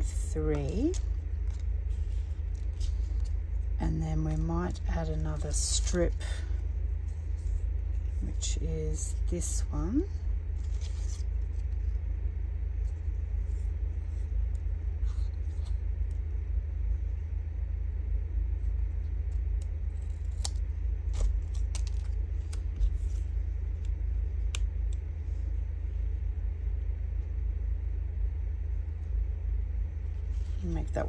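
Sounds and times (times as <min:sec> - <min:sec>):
low background rumble: 0:00.0 - 0:31.0
scissors snipping paper: 0:19.3 - 0:23.0.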